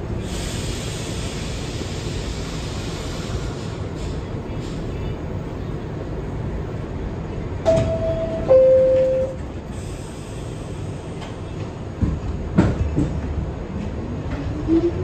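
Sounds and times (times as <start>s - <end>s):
train rumble: 0.0s - 15.0s
two-tone door chime: 7.7s - 9.4s.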